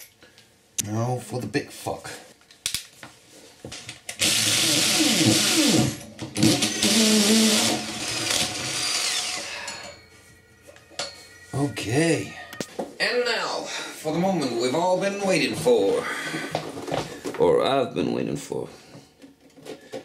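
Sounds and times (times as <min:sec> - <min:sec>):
power drill running: 0:04.2 - 0:09.6.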